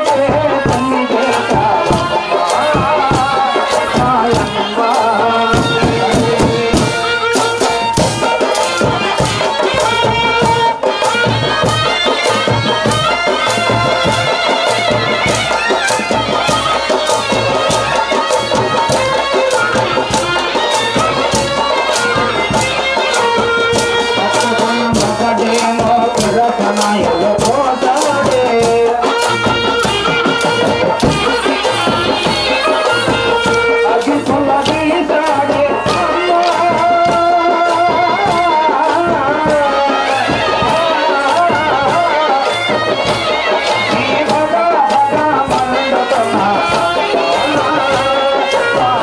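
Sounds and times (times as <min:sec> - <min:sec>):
live folk music: 0:00.0 - 0:49.0
sharp percussive stick strikes: 0:00.2 - 0:38.4.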